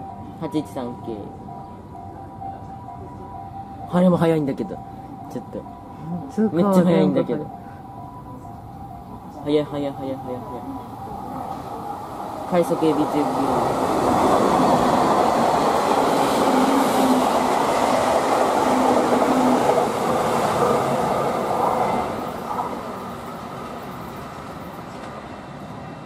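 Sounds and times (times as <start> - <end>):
train wheels rushing on rails: 11.5 - 26.0.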